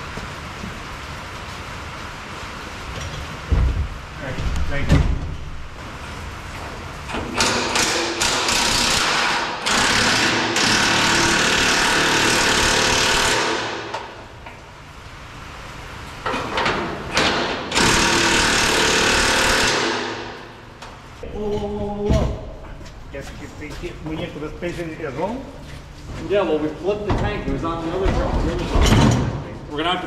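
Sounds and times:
impact wrench running: 7.1 - 14.2, 17.1 - 20.7.

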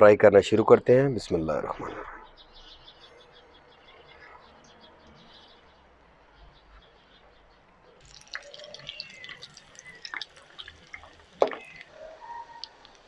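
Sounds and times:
chicken deep-frying in hot oil: 8.0 - 13.0.

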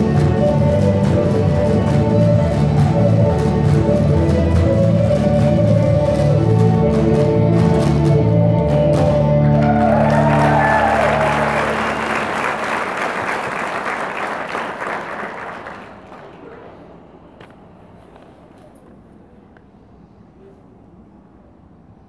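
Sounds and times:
audience applause: 9.4 - 16.9.

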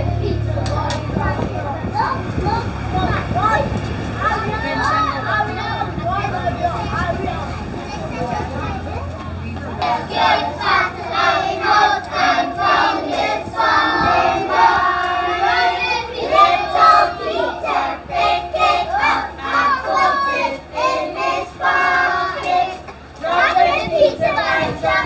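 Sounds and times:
children singing in unison: 9.8 - 25.0.

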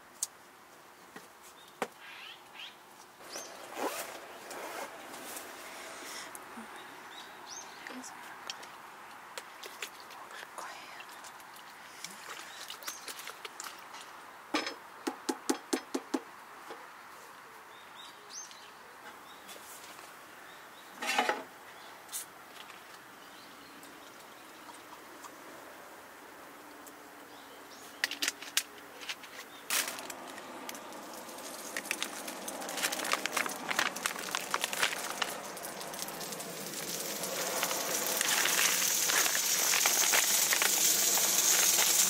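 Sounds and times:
faint steady hiss: 0.0 - 42.0
rustles: 2.9 - 14.2, 18.5 - 20.3, 27.8 - 42.0.

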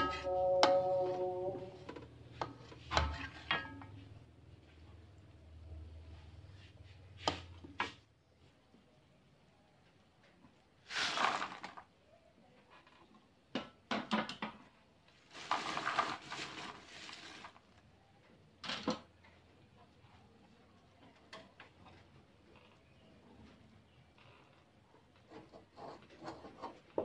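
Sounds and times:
fried chips rustling and clattering: 10.8 - 11.9, 15.1 - 17.8.

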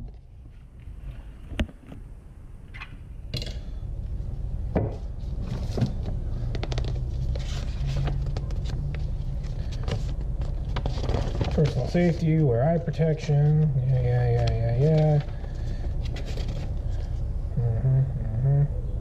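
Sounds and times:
low steady rumble: 0.0 - 19.0
paper rustling: 5.2 - 17.2.

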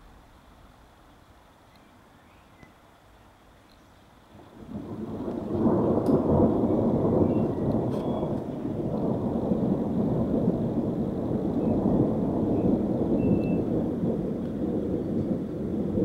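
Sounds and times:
thunder rumbling: 4.3 - 16.0.

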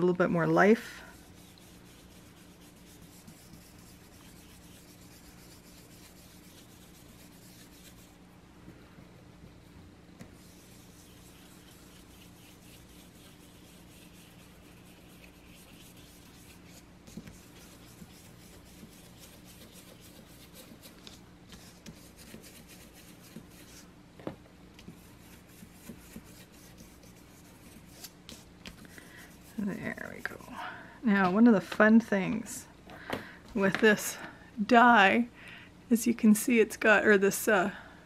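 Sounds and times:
foam brush rubbing on cardstock: 0.7 - 8.2, 10.3 - 23.9, 24.8 - 30.4.

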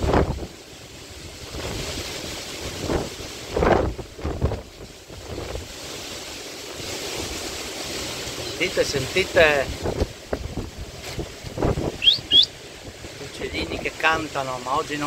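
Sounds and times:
storm wind through trees: 0.0 - 15.0
wind gusts buffeting microphone: 0.0 - 15.0.

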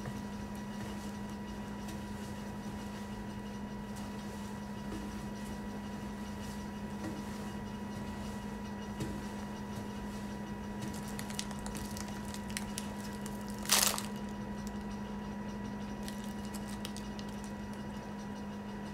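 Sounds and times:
low electrical hum: 0.0 - 18.9.

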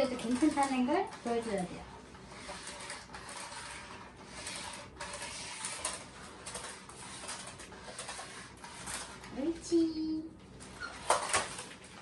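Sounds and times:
vacuum floor head rolling and scraping: 0.0 - 9.6.

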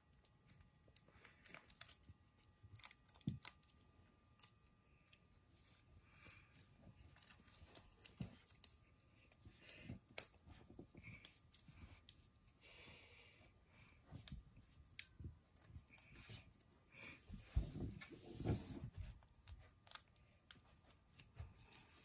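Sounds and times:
paper folding and crinkling: 0.5 - 3.8, 5.6 - 9.5, 17.3 - 22.0.

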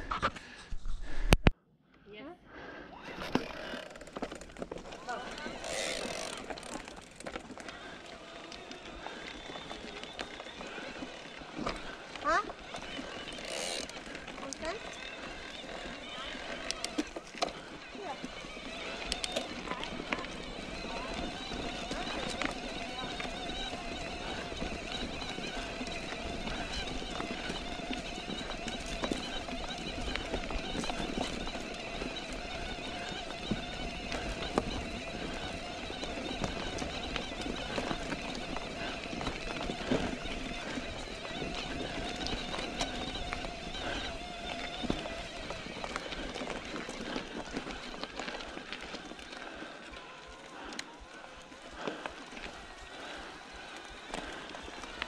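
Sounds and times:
bike clicks and rattles: 3.0 - 55.0
tyre and wind noise: 3.2 - 50.2.

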